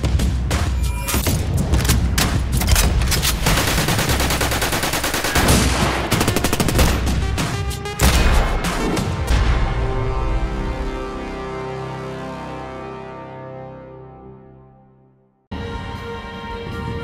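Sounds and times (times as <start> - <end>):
automatic gunfire: 3.4 - 7.1.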